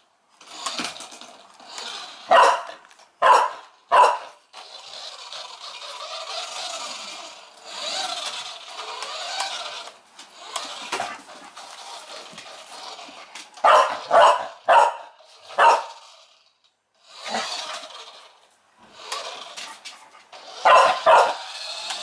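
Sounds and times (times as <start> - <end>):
dog barking: 2.3 - 4.4, 13.6 - 16.0, 20.6 - 21.5.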